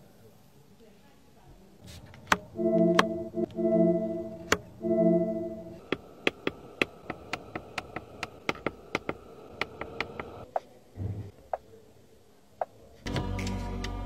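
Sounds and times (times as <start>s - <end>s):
music: 2.6s - 5.8s, 13.1s - 14.0s.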